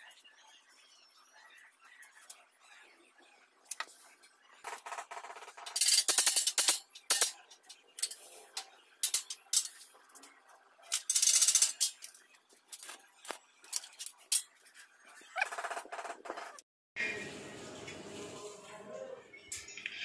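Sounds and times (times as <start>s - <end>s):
metal slats clinking and rattling: 5.5s - 8.2s, 10.9s - 12.2s.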